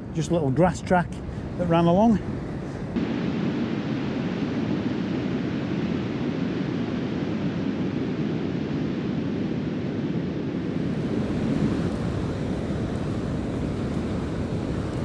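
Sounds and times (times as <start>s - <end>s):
sea surf: 0.0s - 5.9s, 10.6s - 15.0s
wind on microphone: 0.0s - 15.0s.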